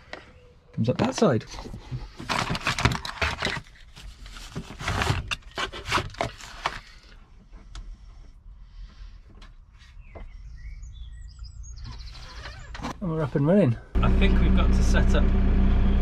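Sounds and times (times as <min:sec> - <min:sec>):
paper and plastic packaging rustling: 0:01.1 - 0:07.2.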